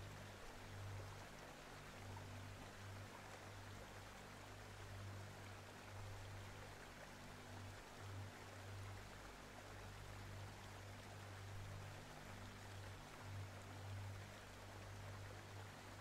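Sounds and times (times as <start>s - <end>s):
faint steady hiss: 0.0s - 16.0s
low pulsing hum: 0.0s - 16.0s.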